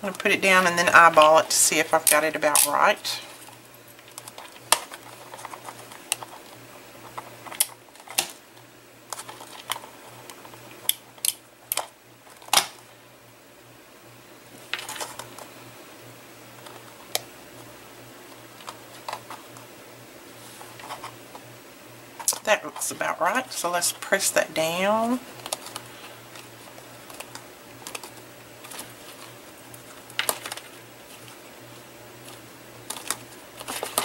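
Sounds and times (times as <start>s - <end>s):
faint low hum: 0.0s - 34.0s
foil paper crinkle: 32.2s - 34.0s.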